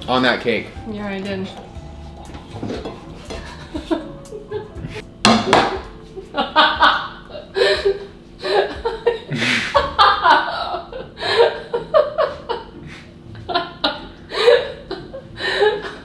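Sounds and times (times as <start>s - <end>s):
people laughing hard: 6.1s - 16.0s.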